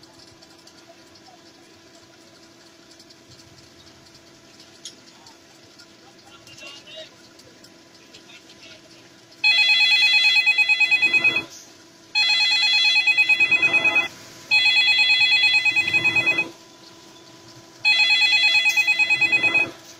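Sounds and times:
telephone ringing electronic trill: 0:09.4 - 0:11.5, 0:12.1 - 0:16.6, 0:17.8 - 0:19.9.

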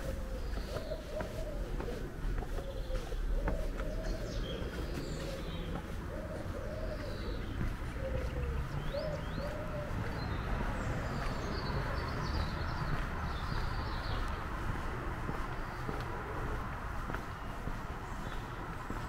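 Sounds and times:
pigeon cooing: 0:00.0 - 0:10.4
small birds chirping: 0:00.0 - 0:19.0.

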